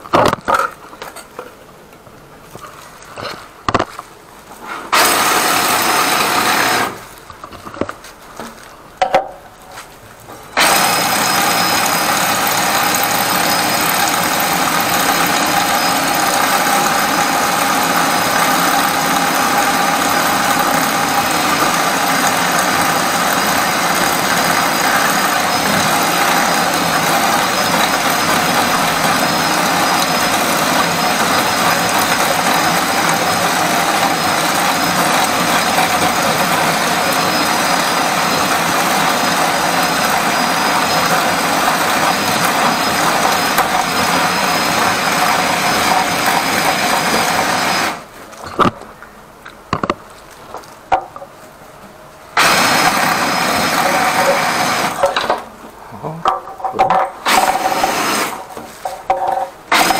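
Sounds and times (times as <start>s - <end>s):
drain cleaning machine running: 4.9s - 7.2s, 10.5s - 48.2s, 52.3s - 59.9s.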